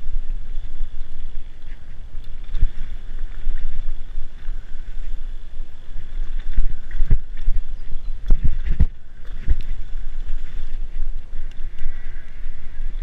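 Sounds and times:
wind rumble on microphone: 0:00.0 - 0:13.0
bike knocking and rattling: 0:06.2 - 0:12.2.

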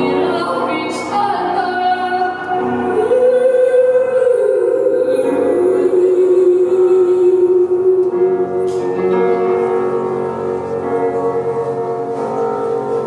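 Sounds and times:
woman singing into a microphone: 0:00.0 - 0:09.3
instrumental accompaniment: 0:00.0 - 0:13.0.

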